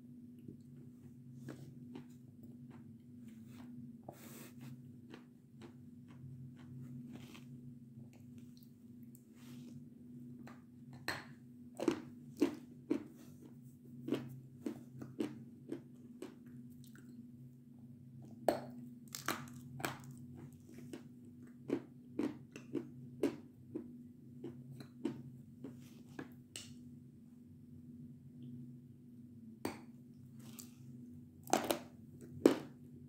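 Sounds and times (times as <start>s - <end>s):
chalk crunching while chewed: 4.6s - 7.6s.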